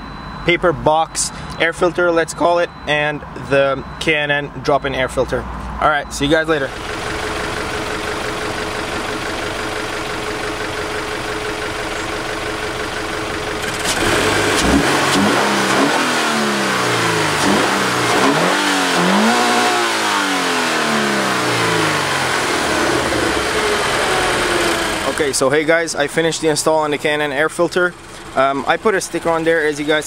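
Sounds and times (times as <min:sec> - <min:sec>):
car engine idling: 0:00.0 - 0:30.0
car engine revving: 0:05.4 - 0:30.0.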